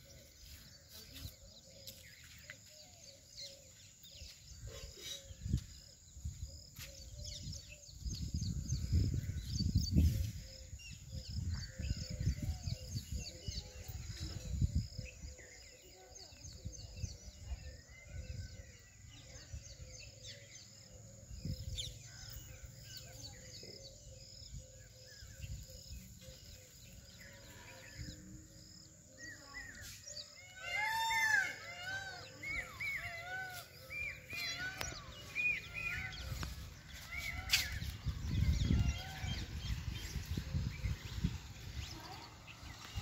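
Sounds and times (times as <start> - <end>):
birds calling: 17.3 - 43.0.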